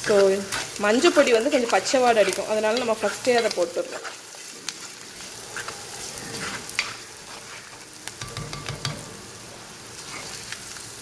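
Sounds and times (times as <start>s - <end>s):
onions sizzling in oil: 0.0s - 11.0s
spatula knocking against pot: 8.2s - 9.0s.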